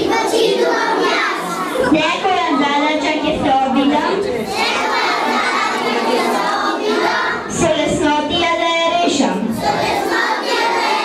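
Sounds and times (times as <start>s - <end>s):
children singing: 0.0s - 2.6s, 4.4s - 7.6s, 9.5s - 11.0s.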